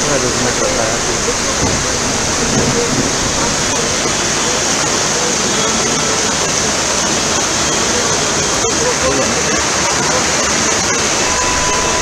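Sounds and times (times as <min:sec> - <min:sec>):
floodwater rushing: 0:00.0 - 0:12.0.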